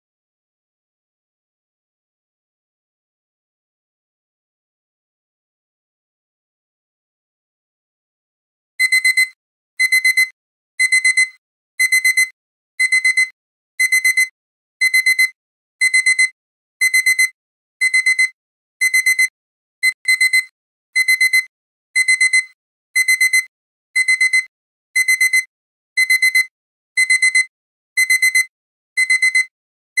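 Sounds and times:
digital timer alarm beeping: 8.8 - 29.5.

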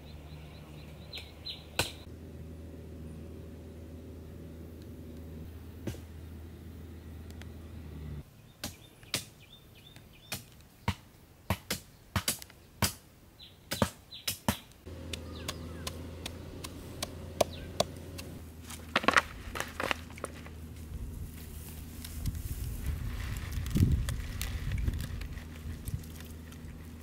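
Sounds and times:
bird chirps: 0.0 - 2.1, 15.0 - 18.0
steady low hum: 0.0 - 8.2, 14.9 - 27.0
blade chopping: 14.9 - 20.5.

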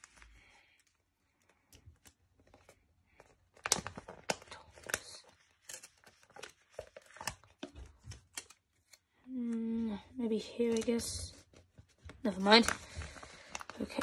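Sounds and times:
sticker sheets crinkling: 1.4 - 9.0, 10.4 - 14.0.

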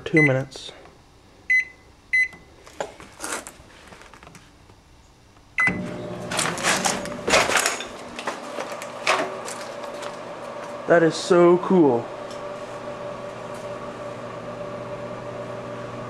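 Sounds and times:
microwave keypad beeping: 0.0 - 0.5, 1.5 - 2.5, 5.6 - 6.1
microwave humming: 0.0 - 16.0.

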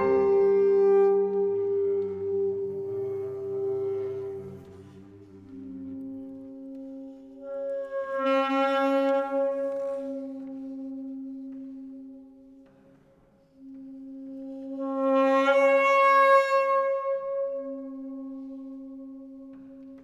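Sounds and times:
saxophone long note: 0.0 - 6.8.

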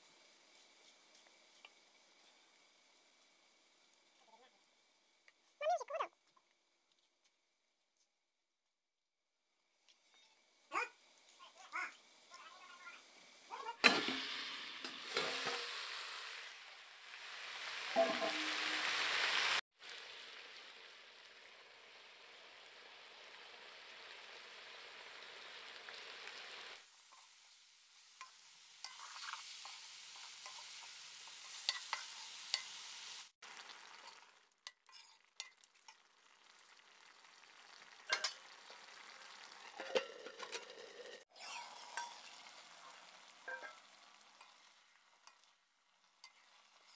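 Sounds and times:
curry sizzling in a wok: 0.0 - 8.2, 9.4 - 46.9
spatula scraping a pan: 28.2 - 32.8, 33.8 - 36.1, 38.1 - 45.5, 46.1 - 46.9.

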